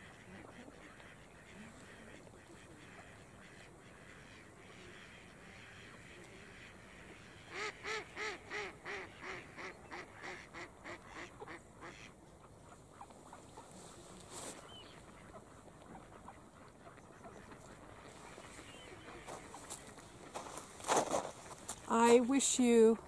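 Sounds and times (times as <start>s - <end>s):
duck quacking: 0.0s - 12.1s
faint duck calls: 0.0s - 20.7s.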